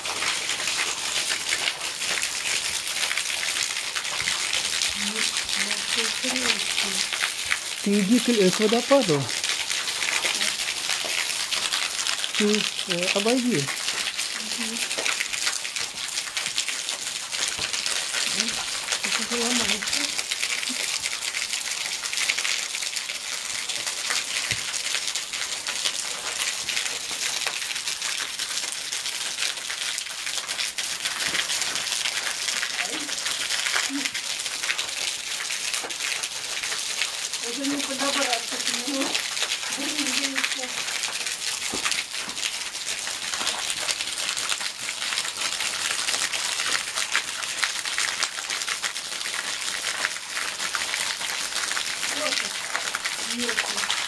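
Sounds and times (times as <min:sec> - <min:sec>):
small waterfall splashing on stones: 0:00.0 - 0:54.0
water drops spattering on rock: 0:01.5 - 0:21.1, 0:37.4 - 0:42.5.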